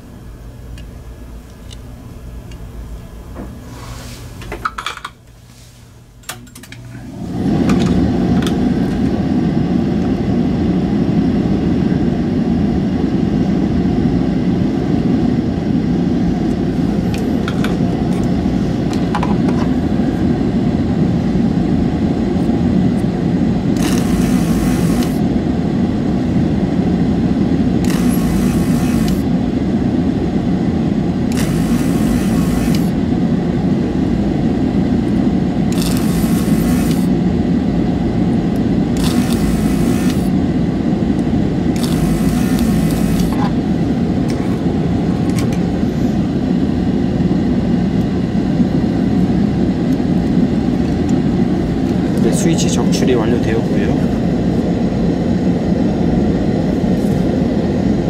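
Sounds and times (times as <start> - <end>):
electric motor drone: 7.1 - 46.7.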